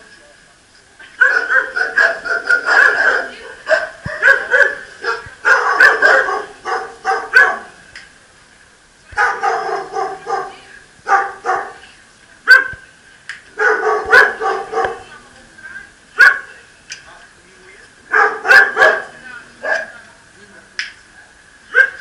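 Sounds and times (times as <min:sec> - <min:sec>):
dogs barking: 0:01.2 - 0:07.8, 0:09.2 - 0:11.8, 0:12.5 - 0:12.8, 0:13.6 - 0:15.1, 0:16.2 - 0:16.5, 0:18.1 - 0:20.0, 0:21.7 - 0:22.0.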